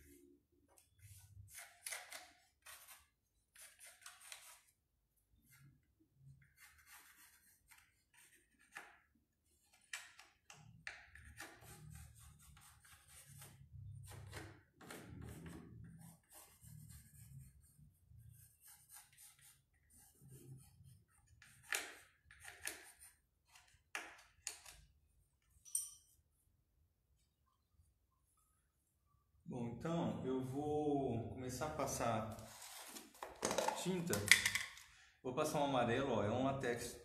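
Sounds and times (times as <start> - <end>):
pencil scratching on wood: 0.8 - 4.7, 5.4 - 10.0, 10.8 - 14.2, 14.8 - 23.8.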